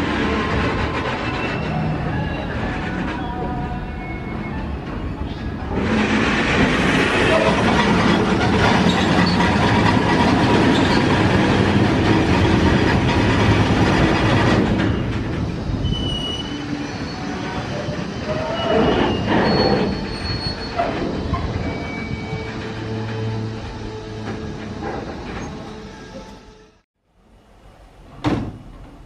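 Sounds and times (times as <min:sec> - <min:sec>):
train passing on rails: 0:00.0 - 0:29.0
high wheel squeal: 0:00.2 - 0:06.3, 0:07.0 - 0:11.5, 0:14.8 - 0:26.8.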